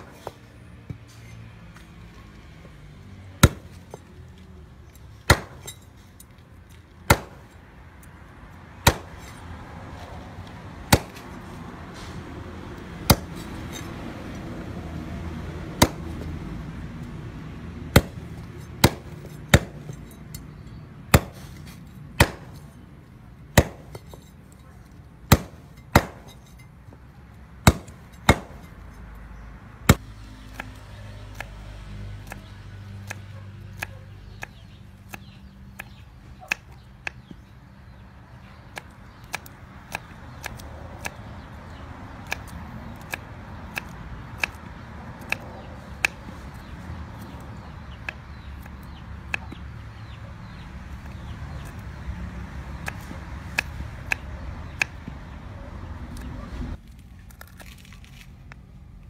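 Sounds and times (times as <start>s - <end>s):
cleaver chopping on wooden block: 3.4s - 4.1s, 5.2s - 5.8s, 7.0s - 7.5s, 8.8s - 9.4s, 10.9s - 11.4s, 13.0s - 13.9s, 15.8s - 16.3s, 17.9s - 20.0s, 21.1s - 22.7s, 23.5s - 24.3s, 25.3s - 26.5s, 27.6s - 28.8s, 42.2s - 51.8s.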